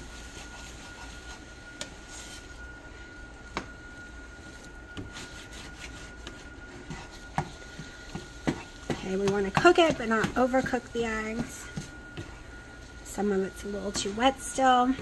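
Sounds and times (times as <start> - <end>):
faint steady whine: 0.0 - 15.0
spatula scraping eggs in pan: 5.0 - 12.5
spatula tapping pan: 6.2 - 12.3.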